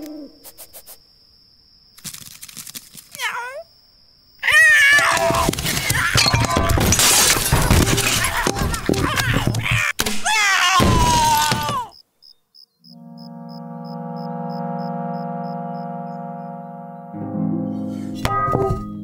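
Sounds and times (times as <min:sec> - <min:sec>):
cartoon crashing and smashing: 0:04.6 - 0:11.9
sustained keyboard music: 0:12.9 - 0:19.0.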